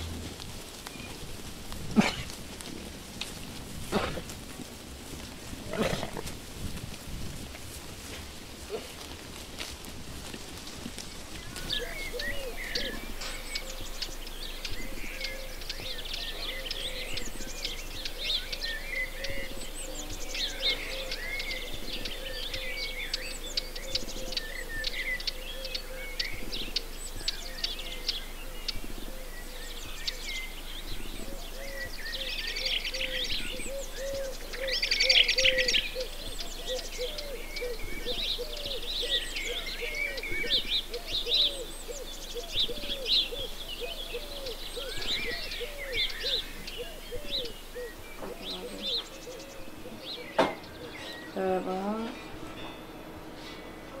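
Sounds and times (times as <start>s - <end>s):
birds chirping and trilling: 0.0s - 54.0s
low wavering bird call: 31.2s - 54.0s.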